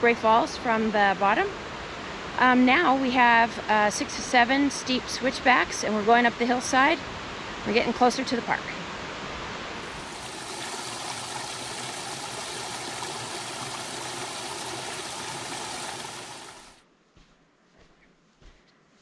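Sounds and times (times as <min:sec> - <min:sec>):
water trickling over rocks: 0:09.8 - 0:16.8.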